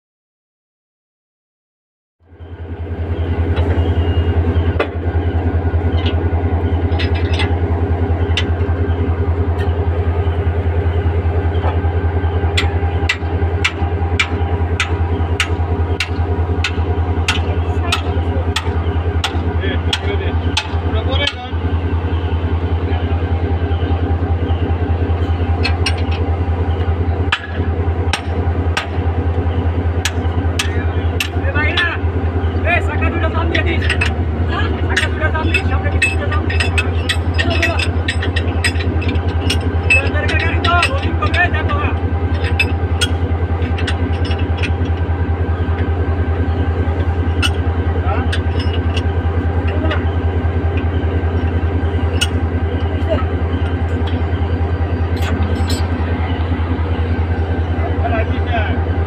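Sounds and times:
diesel locomotive engine idling: 2.2 - 59.0
hammer clanking on metal: 6.9 - 7.6, 12.6 - 21.5, 25.3 - 26.3, 27.3 - 29.0, 30.0 - 31.9, 32.9 - 45.1, 47.0 - 54.4, 55.1 - 56.2.

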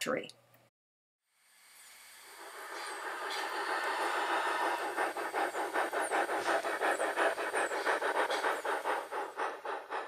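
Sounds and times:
model steam locomotive chuffing: 1.4 - 10.0.

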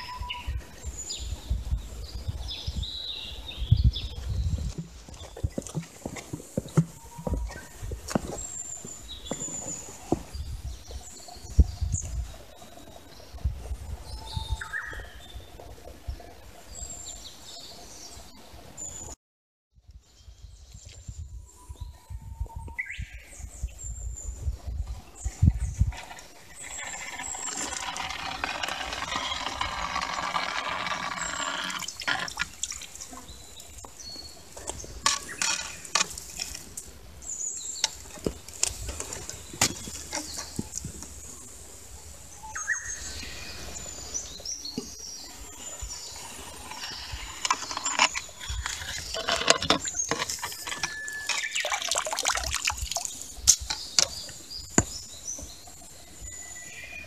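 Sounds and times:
wet gravel rattling in a net: 47.2 - 53.2
water swishing and dripping: 47.4 - 53.3.

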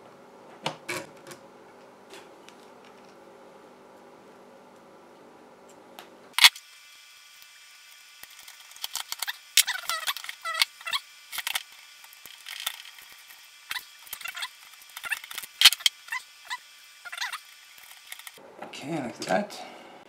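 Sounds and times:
sped-up chirping and clicking: 8.2 - 18.4.

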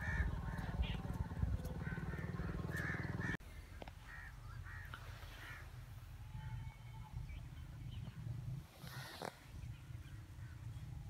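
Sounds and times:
crows cawing: 0.0 - 3.4, 4.0 - 5.7.

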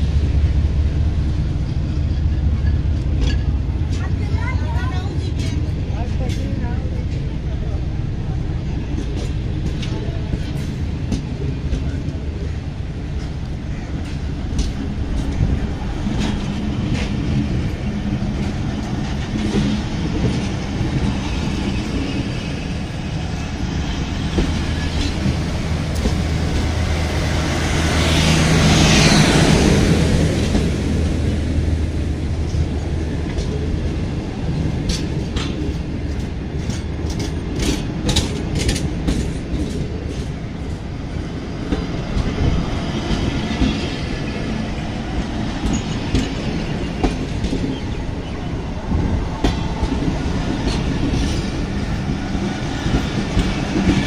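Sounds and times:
train coaches rolling on rails: 0.0 - 54.0
wheels clicking over rail joints: 32.5 - 41.0.

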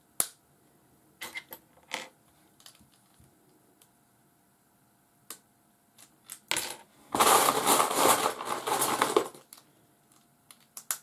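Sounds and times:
plastic bricks clattering: 6.6 - 9.5.

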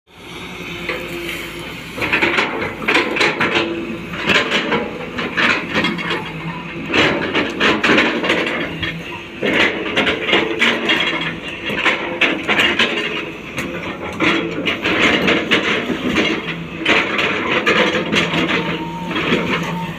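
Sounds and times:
excavator engine and hydraulics: 0.1 - 19.9.

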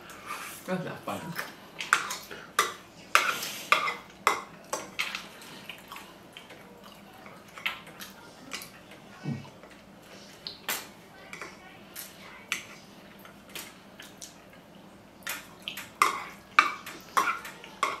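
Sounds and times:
dishes and utensils clinking: 1.4 - 9.0, 15.2 - 18.0.

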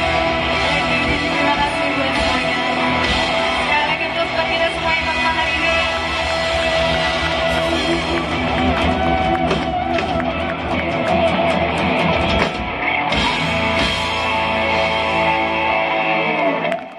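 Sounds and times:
live rock band playing: 0.0 - 16.9.

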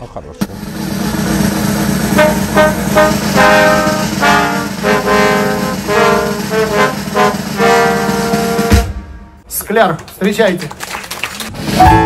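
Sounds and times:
steady low hum: 0.4 - 7.4
trombone ensemble playing chords: 0.4 - 9.4.

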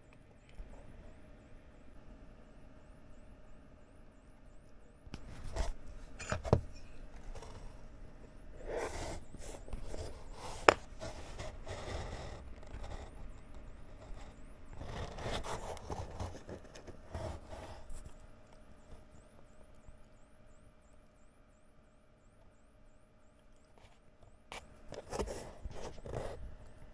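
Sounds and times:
scraping and rubbing on mat: 5.2 - 7.8, 8.6 - 18.2, 23.8 - 26.4.

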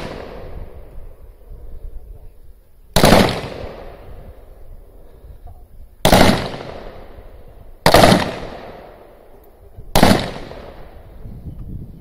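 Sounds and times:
rifle shots with ringing tail: 0.0 - 0.8, 3.0 - 4.2, 6.0 - 9.2, 9.9 - 11.0.

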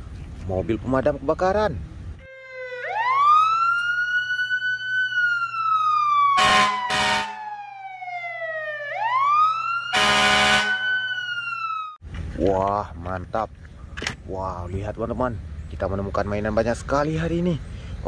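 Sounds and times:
harsh horn blasts: 6.4 - 7.4, 9.9 - 11.0.

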